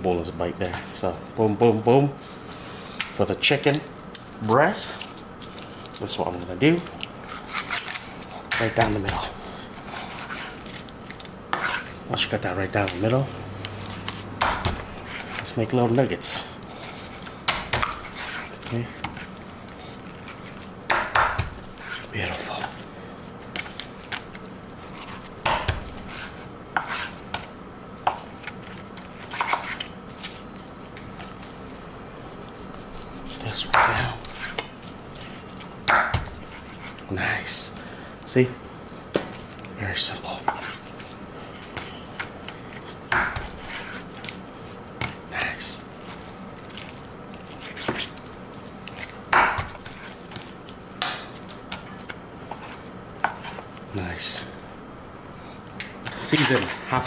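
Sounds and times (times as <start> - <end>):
knife cutting meat: 7.2 - 12.0.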